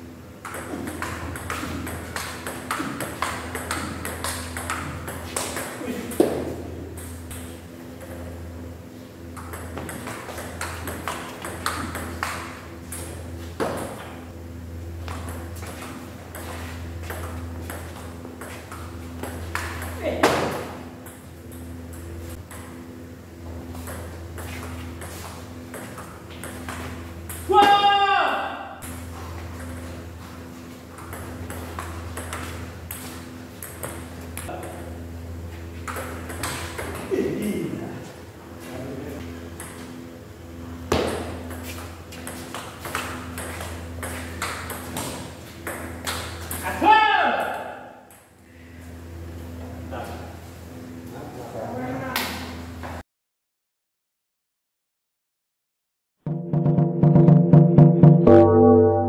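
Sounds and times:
low hum in hall: 0.0s - 53.0s
low hum: 56.3s - 59.0s.

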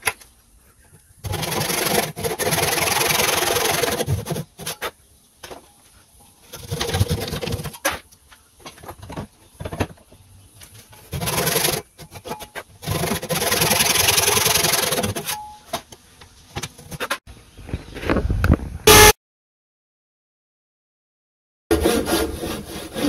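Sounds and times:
hand saw cutting wood: 1.2s - 4.9s, 6.5s - 8.0s, 11.1s - 15.4s, 21.7s - 23.0s.

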